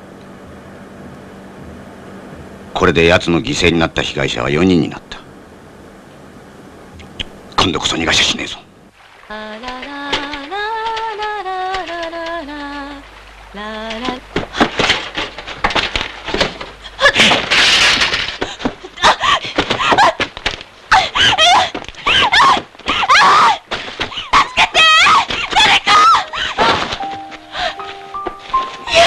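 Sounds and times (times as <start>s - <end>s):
woman screaming and crying out: 20.9s - 26.9s.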